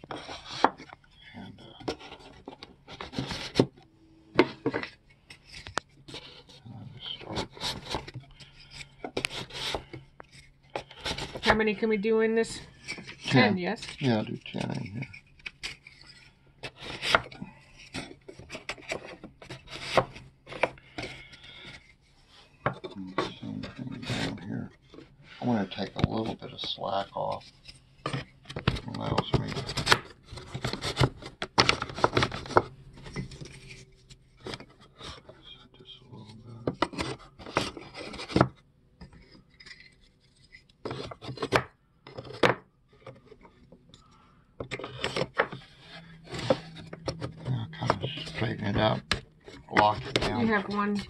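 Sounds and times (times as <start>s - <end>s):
wood scraping: 0.0s - 51.0s
wooden bars knocking and scraping: 36.6s - 43.9s, 44.6s - 51.0s.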